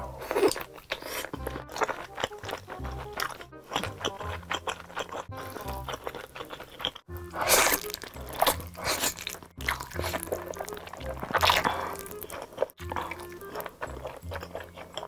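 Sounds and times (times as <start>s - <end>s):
background music with steady beat: 0.0s - 15.0s
person slurping noodles: 0.0s - 15.0s.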